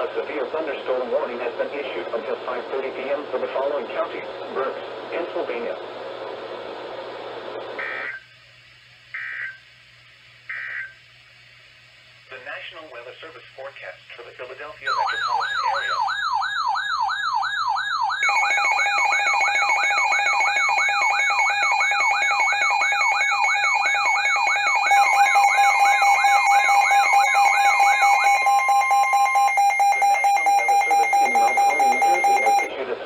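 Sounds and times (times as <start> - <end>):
warbling alarm tone: 7.8 - 8.2, 14.9 - 32.7
steady alarm tone: 7.8 - 8.3, 9.1 - 9.7, 10.5 - 11.0, 14.8 - 32.7
steady two-tone alarm: 7.8 - 8.3, 9.1 - 9.7, 10.5 - 11.0, 14.8 - 32.7.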